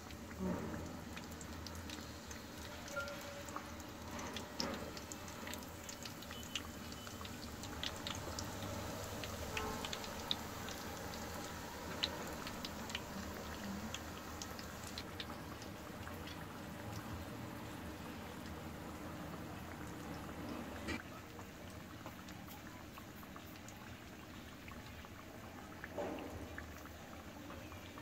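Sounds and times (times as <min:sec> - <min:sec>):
food sizzling in hot oil: 0:00.0 - 0:21.0.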